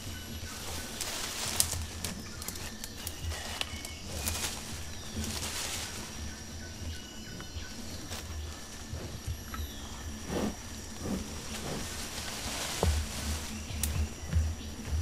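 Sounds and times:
animal rustling leaves: 0.0 - 6.8, 10.1 - 14.4
high insect trill: 0.0 - 15.0.

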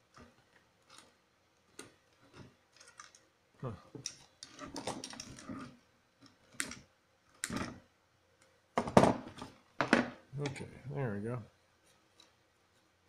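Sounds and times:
plastic clicks and rattles: 0.1 - 3.3, 4.0 - 5.6.

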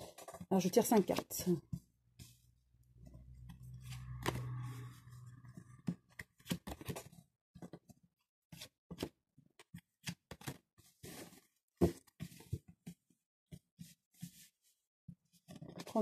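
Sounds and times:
low hum: 2.8 - 5.9.

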